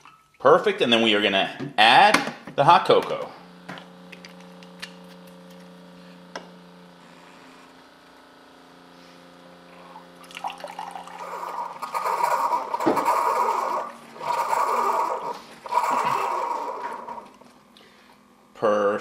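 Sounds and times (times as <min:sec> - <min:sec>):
coffee maker humming: 0:00.9 - 0:19.0
liquid pouring into a mug: 0:10.2 - 0:12.0.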